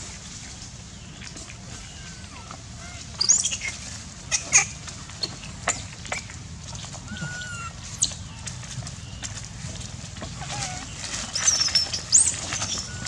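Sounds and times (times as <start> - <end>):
monkeys screeching: 7.1 - 8.1.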